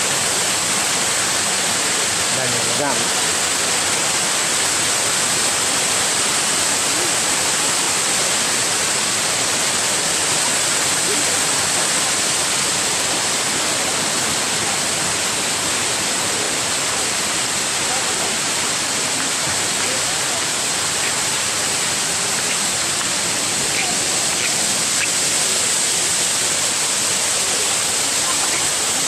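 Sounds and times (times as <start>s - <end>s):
waterfall rushing into pools: 0.0s - 29.0s.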